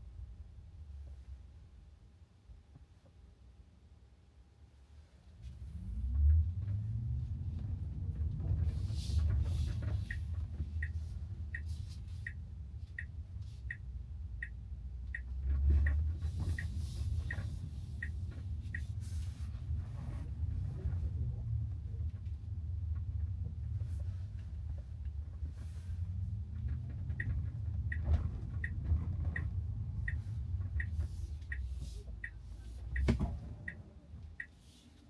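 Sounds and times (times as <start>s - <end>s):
road noise rumble: 0.0s - 35.0s
turn signal ticking: 5.8s - 35.0s.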